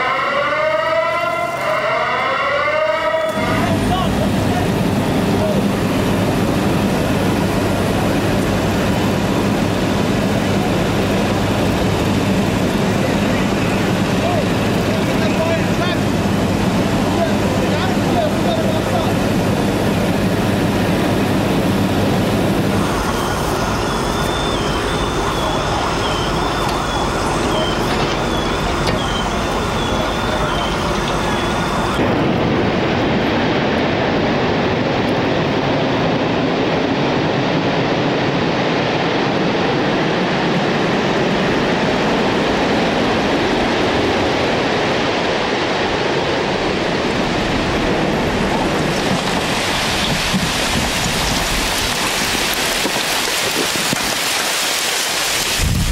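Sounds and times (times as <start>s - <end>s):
two-tone electronic alarm: 0.0s - 3.8s, 22.6s - 32.0s
loud rushing roar: 0.0s - 55.9s
street noise: 0.0s - 55.9s.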